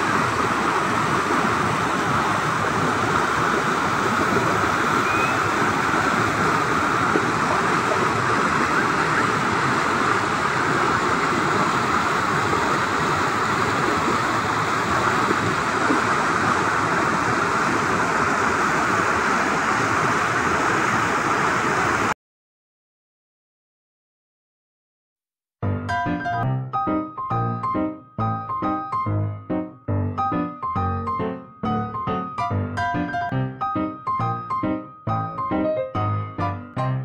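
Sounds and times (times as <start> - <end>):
water rushing over rocks: 0.0 - 22.2.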